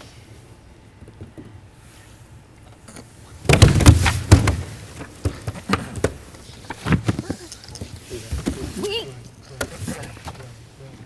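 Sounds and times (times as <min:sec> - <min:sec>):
rapid knocks and thuds: 0:03.4 - 0:07.4.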